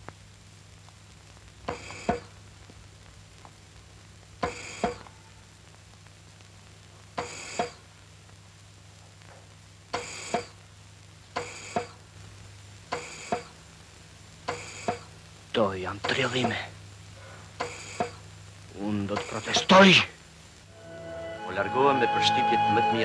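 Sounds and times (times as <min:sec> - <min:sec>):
ringing two-note figure: 0:20.7 - 0:23.0.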